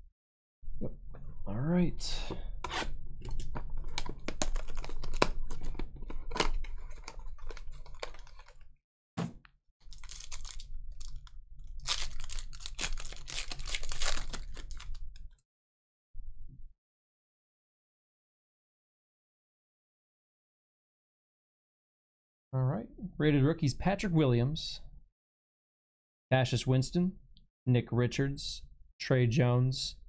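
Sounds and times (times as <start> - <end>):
packaging crinkling and tearing: 3.3 - 8.7, 9.8 - 15.4
foil pack tearing: 9.9 - 15.0.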